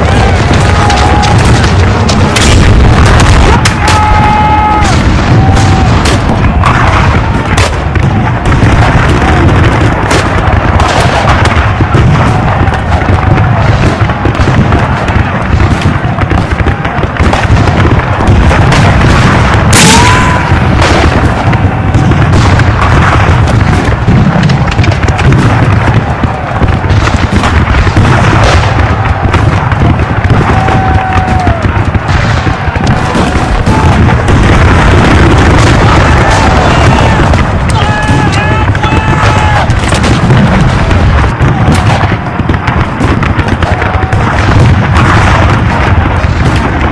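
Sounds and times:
cannon booms: 0.0s - 46.9s
heavy rumble: 0.0s - 46.9s
loud sharp crack: 0.0s - 46.9s
musket fire: 0.0s - 46.9s.

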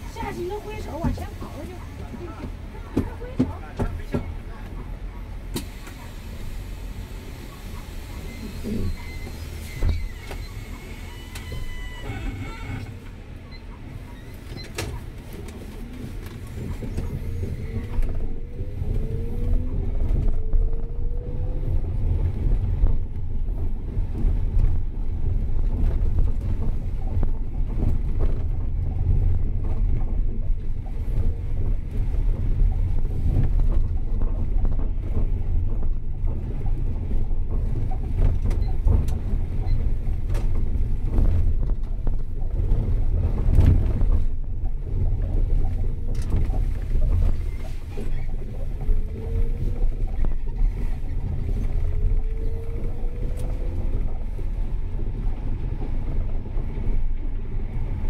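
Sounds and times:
vehicle road and wind noise: 0.0s - 58.0s.

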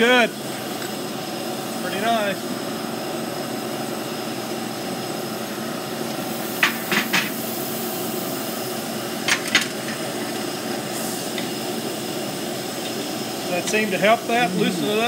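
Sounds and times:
shop machinery drone: 10.0s - 15.0s.

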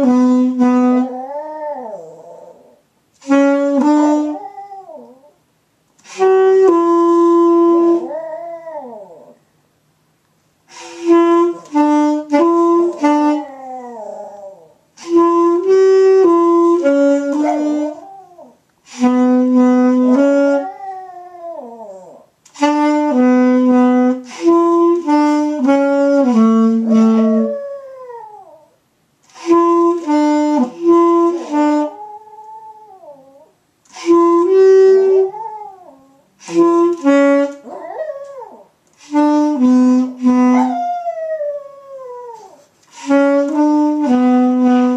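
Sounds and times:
saxophone playing held notes: 0.0s - 1.7s, 3.2s - 4.5s, 6.0s - 8.6s, 10.7s - 13.9s, 15.0s - 18.2s, 18.8s - 20.9s, 22.5s - 27.7s, 29.3s - 32.6s, 33.9s - 35.6s, 36.4s - 44.9s
dog howling: 1.1s - 2.8s, 4.3s - 5.4s, 8.0s - 9.4s, 13.4s - 14.8s, 17.4s - 18.6s, 20.4s - 22.3s, 27.4s - 28.8s, 31.9s - 33.5s, 35.2s - 36.2s, 37.6s - 38.7s, 40.5s - 42.6s.

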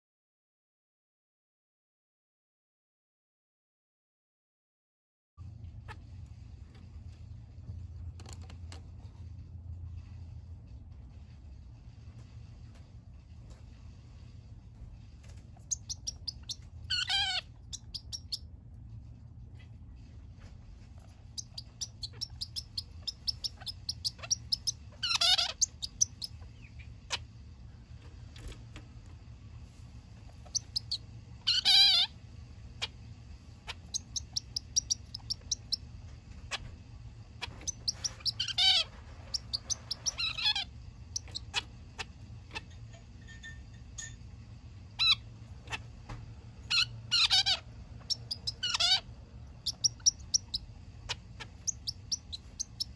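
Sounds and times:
soft ticking bird notes: 15.6s - 18.4s, 21.2s - 26.9s, 30.3s - 32.0s, 33.6s - 35.9s, 37.4s - 42.8s, 48.0s - 52.9s
finch nasal calls: 37.4s - 42.6s.

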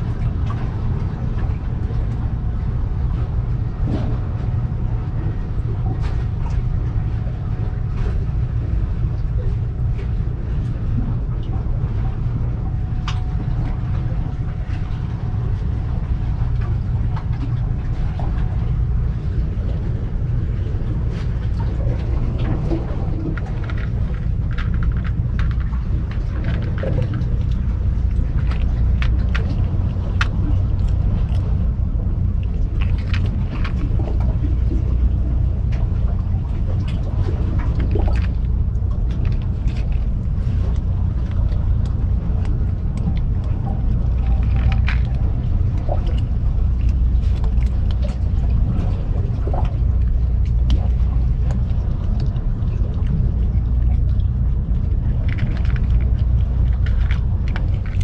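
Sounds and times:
low rumble: 0.0s - 58.0s
kittens crunching dry food: 23.2s - 31.6s, 32.4s - 34.8s, 36.8s - 48.9s, 49.6s - 58.0s.

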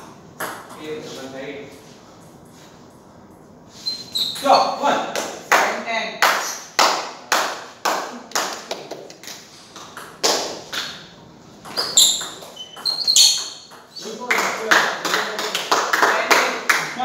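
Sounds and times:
short high squeaks: 3.7s - 4.8s, 11.7s - 14.1s.

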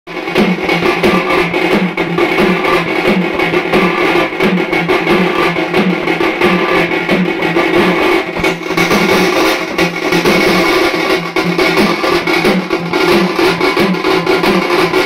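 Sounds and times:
small side drum: 0.1s - 15.0s
steel pot drums beaten with sticks: 0.1s - 15.0s.

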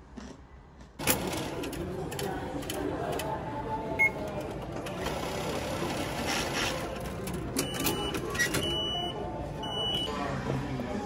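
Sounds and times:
ticket machine whirring: 1.0s - 3.3s, 4.0s - 9.1s.

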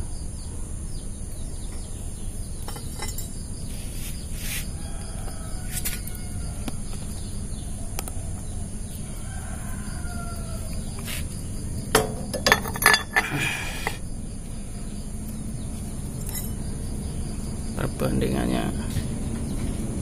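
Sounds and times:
low background noise: 0.0s - 20.0s
metal clinks and clanks: 2.6s - 3.4s, 11.9s - 13.4s, 16.2s - 16.6s
distant rooster crow: 4.4s - 13.9s.

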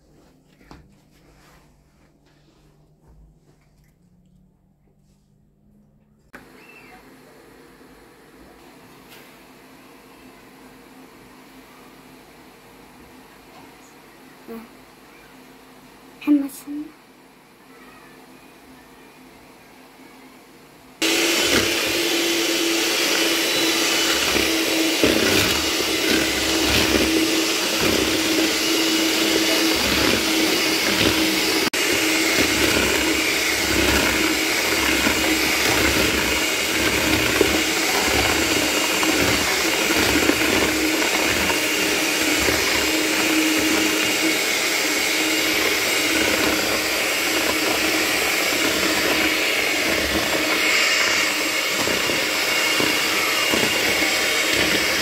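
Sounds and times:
beaters churning eggs: 21.0s - 55.0s
electric hand mixer whirring: 21.0s - 55.0s.

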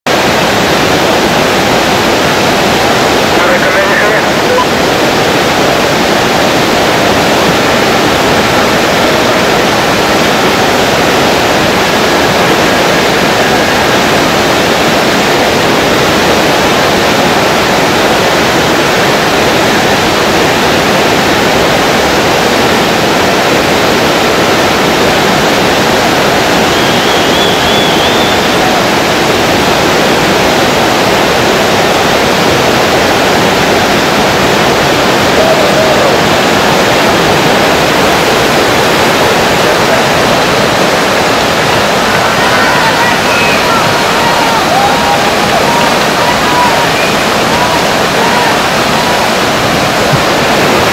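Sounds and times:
whitewater rapids roaring: 0.1s - 50.9s.

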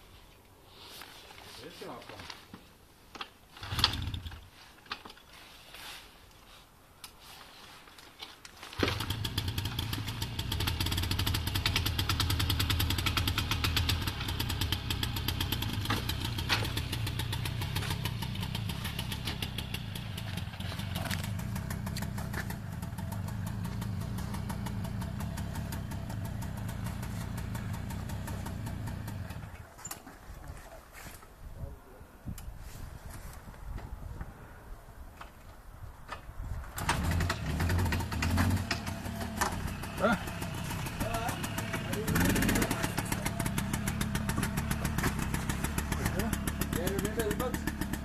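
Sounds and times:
moped engine revving: 8.8s - 29.5s, 36.8s - 48.0s.

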